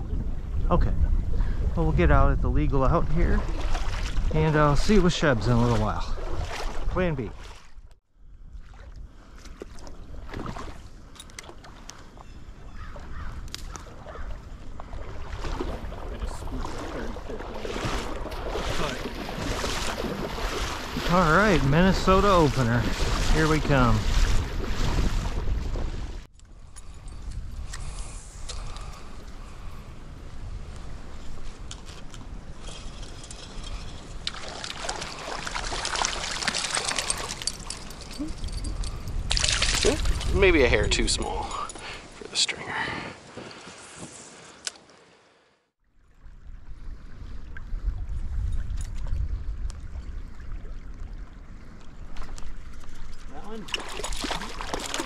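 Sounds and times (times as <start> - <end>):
wind buffeting microphone: 0.0 - 11.1, 12.1 - 42.1, 46.2 - 54.8
stream water splashing: 3.2 - 7.9, 8.6 - 12.2, 13.7 - 26.3, 33.0 - 42.4, 49.7 - 55.0.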